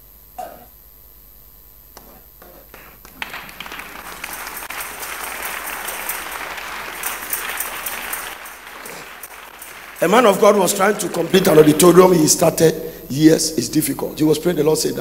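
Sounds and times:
congregation applauding: 0:02.7 - 0:12.7.

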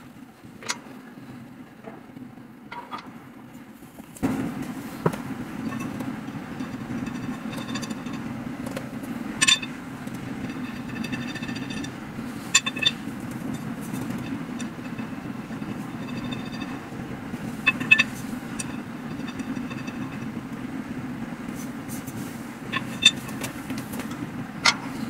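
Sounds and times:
steady low hum: 0:00.0 - 0:25.0
ringing knocks on metal tubes: 0:05.0 - 0:20.6, 0:22.6 - 0:24.9
metal tubes clinking: 0:05.0 - 0:20.7, 0:21.6 - 0:25.0.

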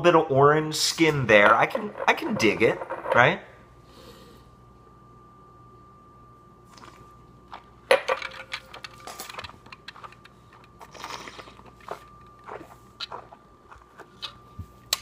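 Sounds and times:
wet mouth clicks and smacks: 0:12.4 - 0:13.4, 0:14.0 - 0:15.0.

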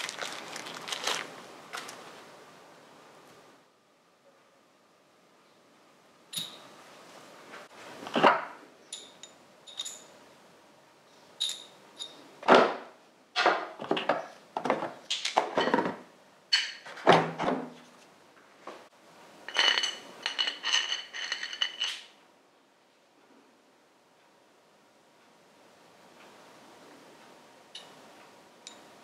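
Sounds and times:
metallic clinks: 0:06.3 - 0:06.7, 0:08.9 - 0:10.2, 0:11.4 - 0:12.2.

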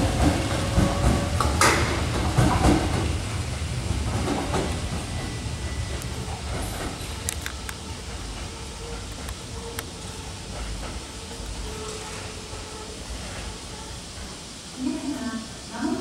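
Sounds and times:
wheel clacks over rail joints: 0:00.0 - 0:03.1
electric train rumbling: 0:00.0 - 0:16.0.

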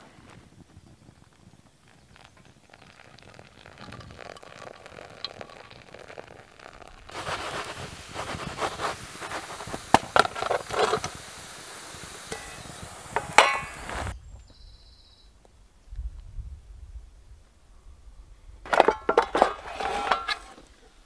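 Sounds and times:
dough sizzling in a pan: 0:00.9 - 0:14.2
water pouring into coffee filter: 0:01.9 - 0:13.9
metal pan clinks and scrapes: 0:12.3 - 0:13.9, 0:18.7 - 0:20.6.

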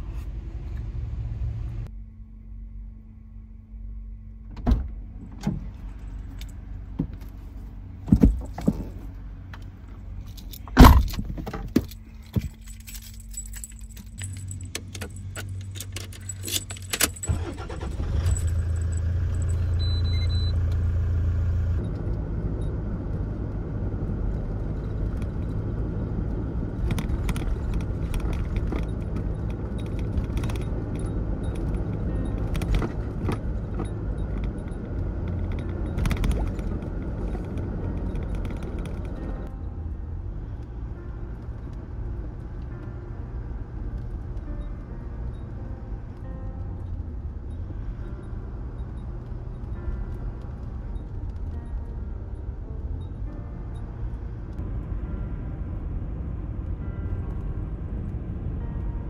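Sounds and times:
engine and road noise: 0:00.0 - 0:59.0
car engine starting: 0:04.4 - 0:59.0
keys jangling in ignition: 0:10.2 - 0:20.4, 0:26.8 - 0:39.5.

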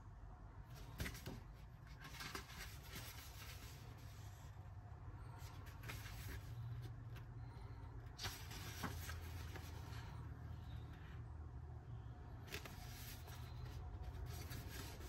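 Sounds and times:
low steady hum: 0:00.0 - 0:15.0
book pages turning: 0:00.7 - 0:04.5, 0:05.3 - 0:11.1, 0:12.3 - 0:15.0.

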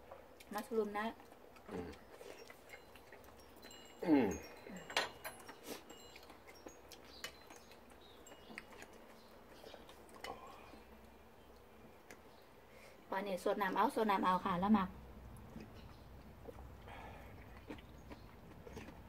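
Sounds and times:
person humming mm: 0:01.7 - 0:02.0, 0:04.0 - 0:04.5
faint high tinkling tones: 0:02.0 - 0:11.6.

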